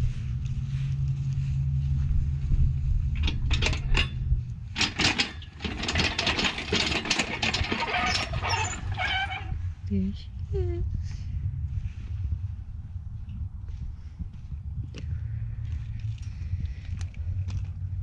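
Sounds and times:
engine hoist metal clanking: 0:03.1 - 0:09.6.

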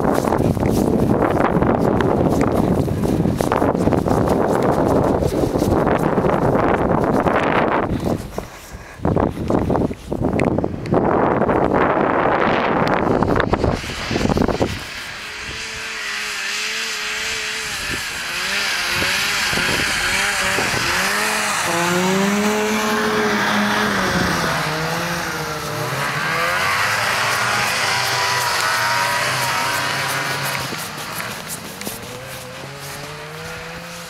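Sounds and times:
snowmobile engines revving: 0:00.0 - 0:09.9, 0:10.5 - 0:34.0
wind buffeting microphone: 0:00.0 - 0:34.0.

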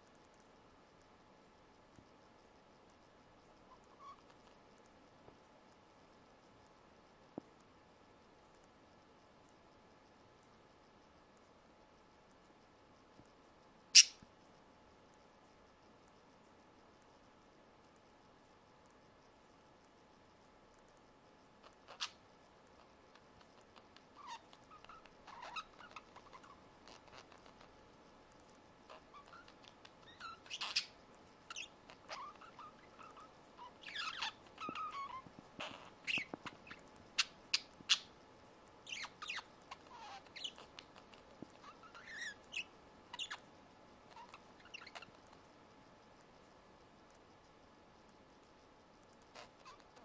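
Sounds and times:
budgerigars chirping and clicking: 0:03.7 - 0:04.6, 0:14.0 - 0:14.2, 0:21.6 - 0:22.2, 0:22.8 - 0:27.7, 0:28.9 - 0:38.2, 0:38.8 - 0:43.5, 0:44.1 - 0:45.4, 0:49.3 - 0:50.0.

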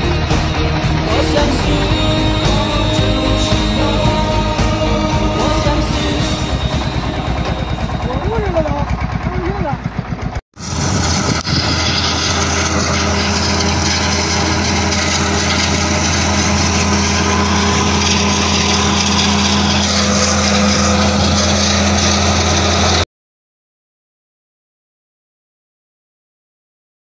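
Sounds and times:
engine running steadily: 0:00.0 - 0:23.0.

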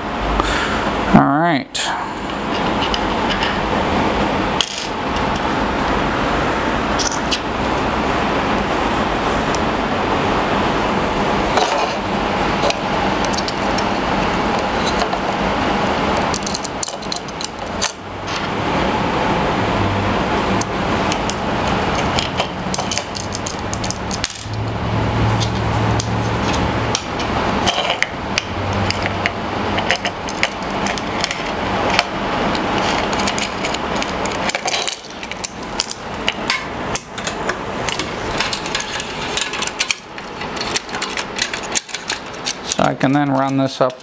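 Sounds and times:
steady background noise: 0:00.0 - 0:44.0
hard parts clicking and knocking: 0:02.3 - 0:03.7, 0:04.6 - 0:05.5, 0:06.9 - 0:07.5, 0:11.5 - 0:18.5, 0:20.6 - 0:44.0.

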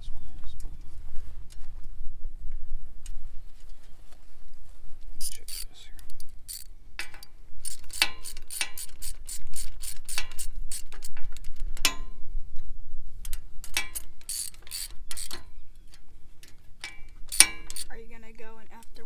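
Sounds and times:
socket ratchet clicking: 0:05.2 - 0:12.0, 0:13.3 - 0:17.9.

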